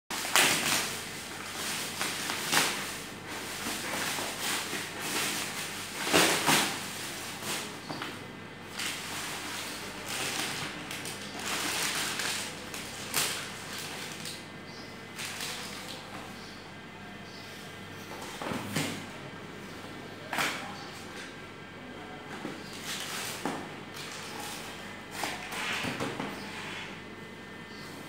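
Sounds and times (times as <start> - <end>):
plastic bag and bubble wrap crinkling: 0.1 - 14.5, 15.1 - 16.1, 22.6 - 25.8.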